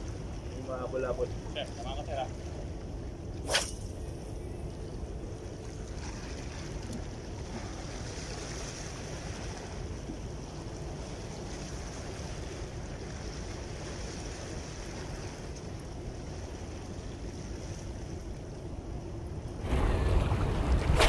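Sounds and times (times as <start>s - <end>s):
seaside wind: 0.0s - 21.0s
small waves against rocks: 19.6s - 21.0s.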